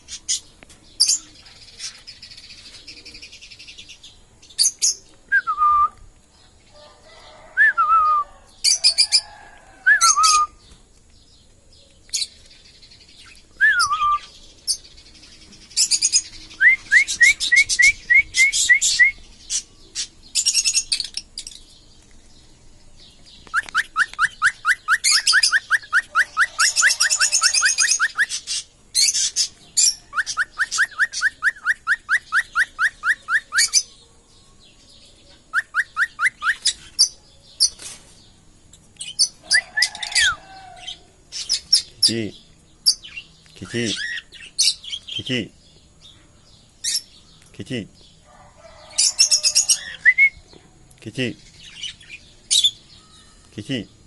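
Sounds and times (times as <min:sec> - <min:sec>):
parrots chirping and whistling: 0:09.9 - 0:10.6, 0:13.6 - 0:14.8, 0:15.8 - 0:21.6, 0:23.5 - 0:33.9, 0:35.5 - 0:37.8, 0:39.0 - 0:42.0, 0:48.9 - 0:50.4.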